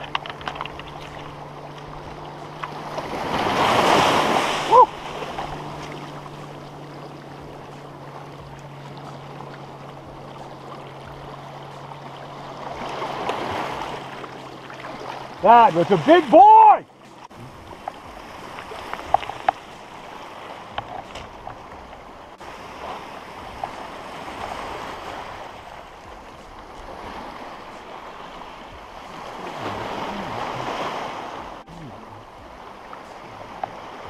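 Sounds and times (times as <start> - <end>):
waves washing over cobble shore: 2.1 - 6.2, 12.7 - 14.2, 14.8 - 20.7, 22.0 - 34.0.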